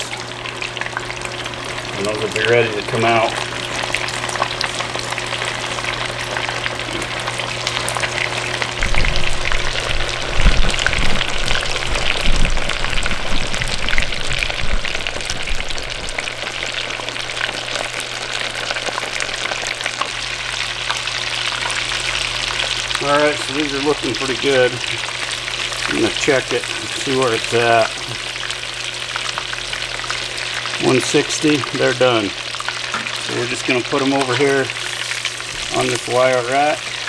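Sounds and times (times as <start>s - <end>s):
oil sizzling while deep-frying: 0.0s - 37.0s
low rumbling bumps: 8.8s - 16.4s.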